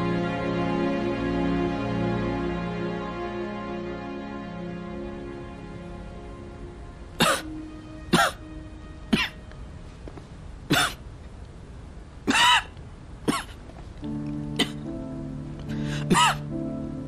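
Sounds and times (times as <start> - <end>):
soft background music: 0.0 - 17.0
man coughing: 7.2 - 7.5, 8.1 - 8.4, 10.7 - 11.0, 12.3 - 12.7, 14.6 - 14.8, 16.0 - 16.5.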